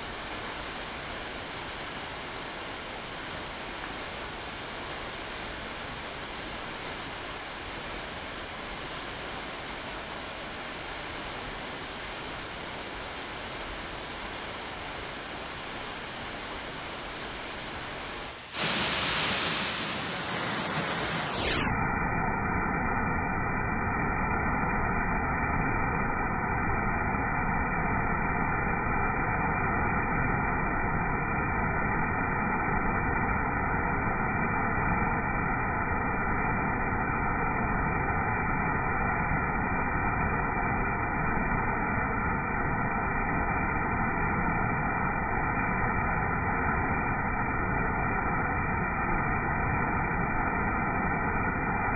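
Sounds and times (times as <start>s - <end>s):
waterfall pouring onto rocks: 18.5s - 21.2s.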